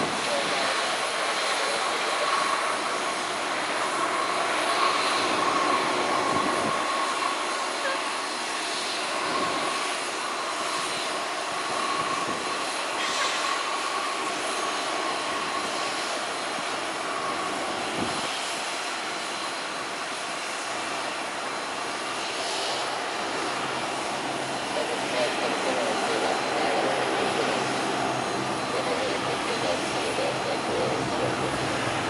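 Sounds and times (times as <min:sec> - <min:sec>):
propeller aircraft engines droning: 0:00.0 - 0:32.0.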